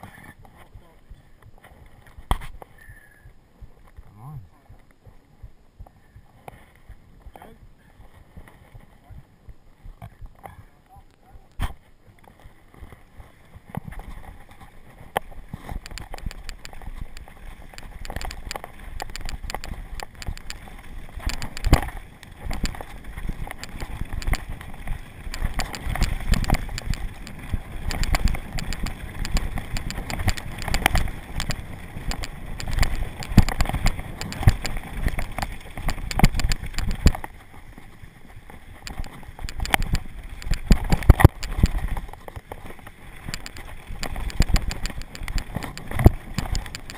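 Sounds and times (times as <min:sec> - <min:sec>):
bike tyres rolling on gravel: 0:00.0 - 0:46.9
bike rattling over bumps: 0:12.2 - 0:46.9.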